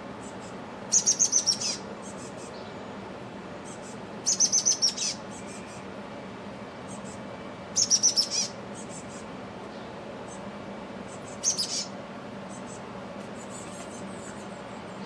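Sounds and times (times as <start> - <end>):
chickadee calling: 0.0 - 2.8, 3.6 - 6.0, 6.8 - 15.0.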